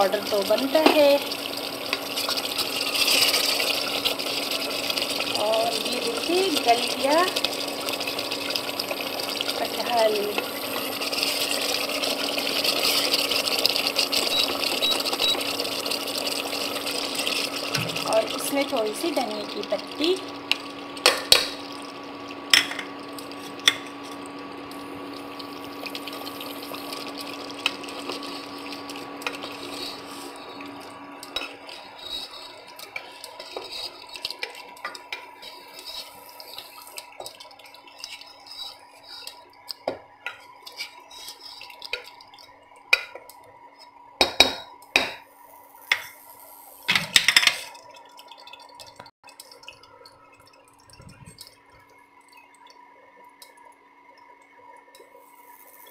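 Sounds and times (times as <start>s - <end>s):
ladle stirring and scraping pot: 0.2s - 9.8s, 10.4s - 14.5s, 25.2s - 42.3s
steady hum: 50.0s - 55.9s.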